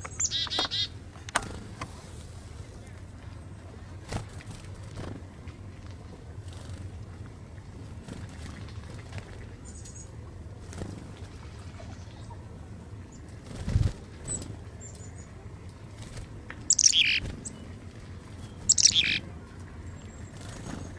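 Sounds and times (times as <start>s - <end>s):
chickadees calling: 0.0s - 1.0s, 16.7s - 17.7s, 18.4s - 19.3s
harsh bird calls: 0.0s - 1.0s, 16.7s - 17.7s, 18.4s - 19.3s.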